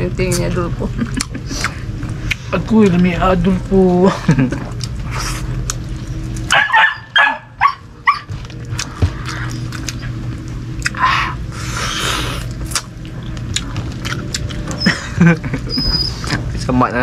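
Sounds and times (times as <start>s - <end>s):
dog barking: 6.5s - 8.3s.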